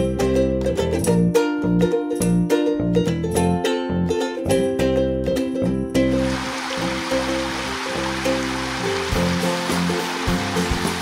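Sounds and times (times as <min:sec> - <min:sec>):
running water hiss: 0:06.2 - 0:11.0
background music with light beat: 0:06.8 - 0:11.0.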